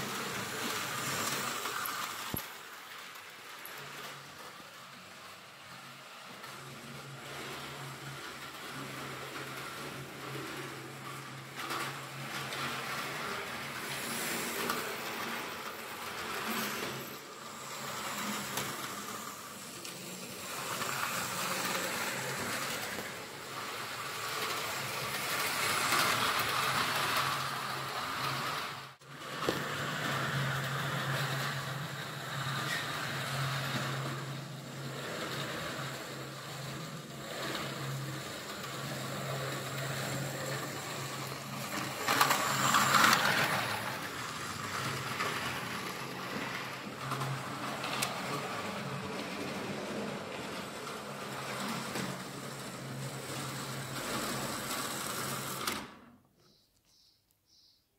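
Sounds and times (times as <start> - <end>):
model train motor hum: 0.0 - 56.0.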